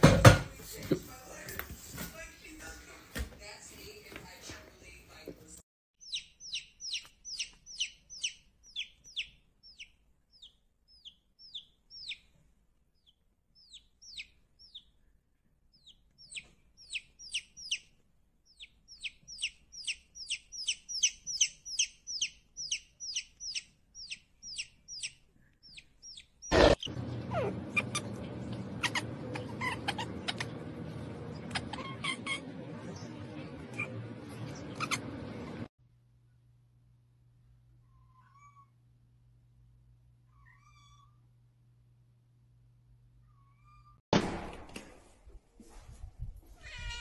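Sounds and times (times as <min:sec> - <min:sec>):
baby chick peeping: 0:06.0 - 0:12.4, 0:13.0 - 0:35.7.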